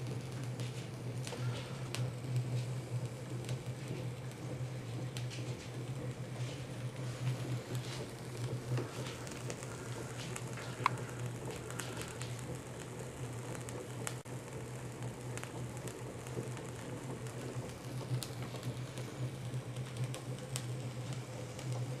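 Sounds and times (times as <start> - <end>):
light mechanical ticks: 0.0 - 5.4, 6.9 - 14.3, 15.0 - 22.0.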